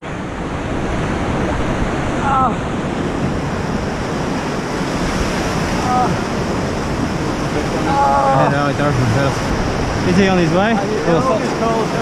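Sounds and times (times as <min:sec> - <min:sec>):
river rapids rushing: 0:00.1 - 0:12.0.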